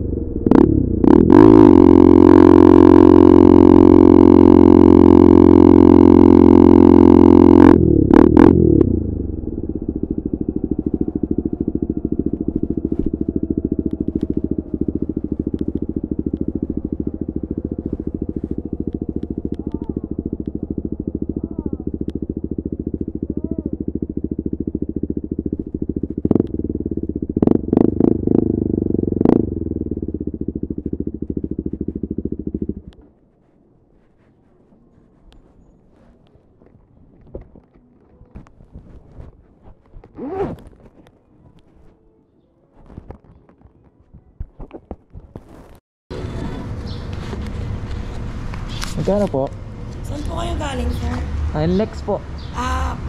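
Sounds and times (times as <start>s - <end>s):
motorcycle engine revving and idling: 0.0s - 42.2s, 42.8s - 53.0s.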